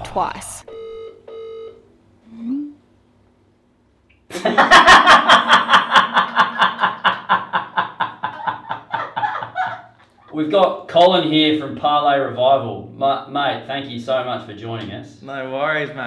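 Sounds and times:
phone ringing tone: 0.7s - 1.8s
person laughing loudly: 4.3s - 10.3s.

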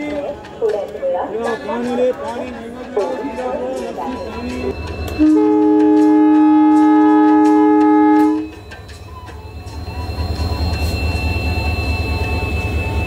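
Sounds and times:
locomotive horn blast: 5.2s - 8.6s.

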